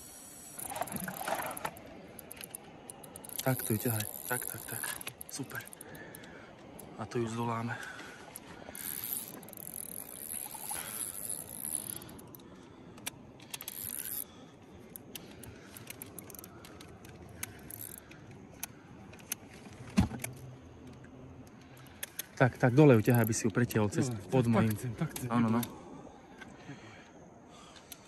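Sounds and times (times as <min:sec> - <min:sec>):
fishing reel whirring: 0:00.0 - 0:06.9, 0:08.3 - 0:19.4, 0:21.6 - 0:23.5
small clicks and knocks: 0:07.8 - 0:22.4.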